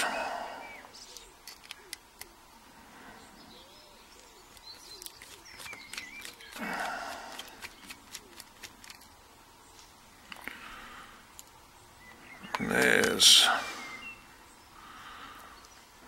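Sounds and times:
faint bird chirps: 0:03.0 - 0:06.6, 0:11.8 - 0:16.0.

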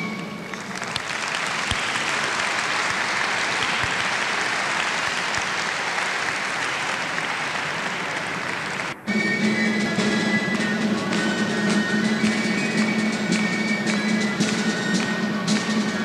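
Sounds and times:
audience applauding: 0:00.4 - 0:09.0, 0:11.0 - 0:16.0
band music: 0:07.9 - 0:16.0.

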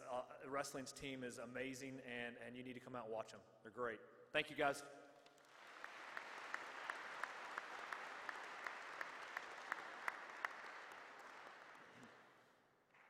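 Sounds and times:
sharp even hand claps: 0:05.2 - 0:12.4
audience applauding: 0:05.3 - 0:12.6.

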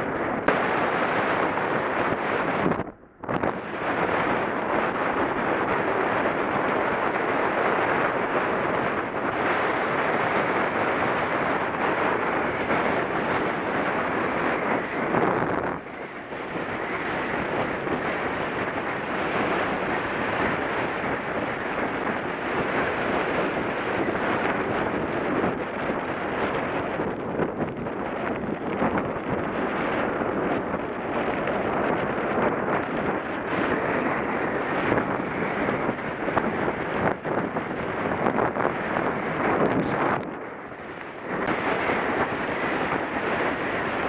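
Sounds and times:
wind rushing over microphone: 0:00.0 - 0:44.0
tyres rumbling on gravel: 0:24.1 - 0:34.0.

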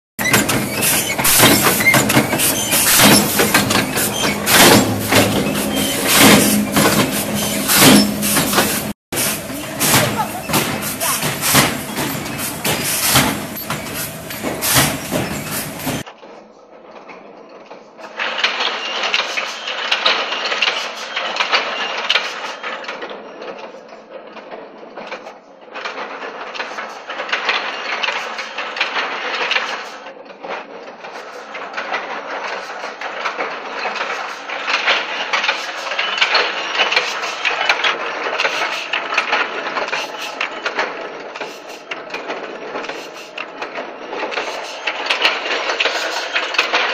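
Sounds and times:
machine rapid mechanical clatter: 0:00.2 - 0:46.9.

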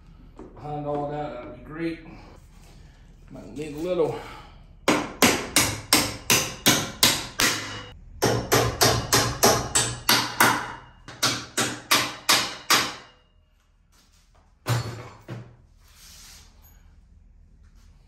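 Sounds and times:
hammer striking metal bolt: 0:04.9 - 0:13.2.

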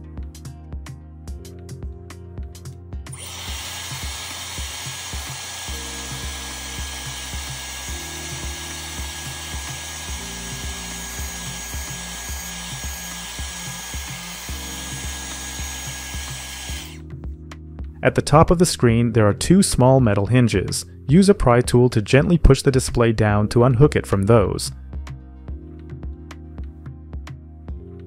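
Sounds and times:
hair dryer blowing: 0:03.1 - 0:17.0.

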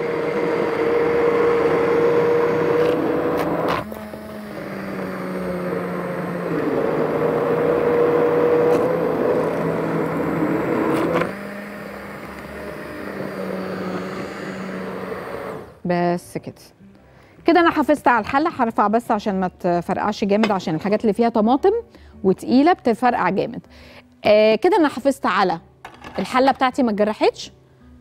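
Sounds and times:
immersion blender whirring: 0:00.0 - 0:15.8.

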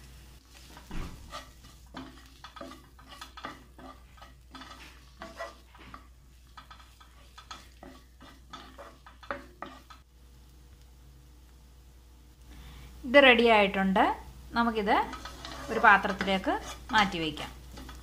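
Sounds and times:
vegetables sizzling in oil: 0:00.0 - 0:18.0
wooden spatula scraping pan: 0:00.4 - 0:10.0, 0:14.8 - 0:18.0.

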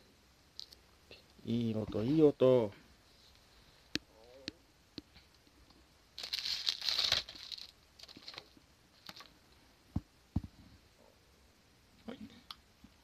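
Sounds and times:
paper crinkling: 0:06.2 - 0:09.4.

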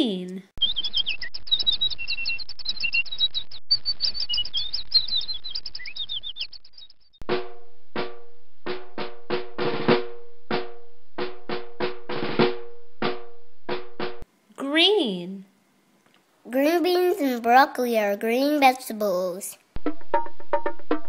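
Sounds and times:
songbirds chirping: 0:00.6 - 0:07.1.

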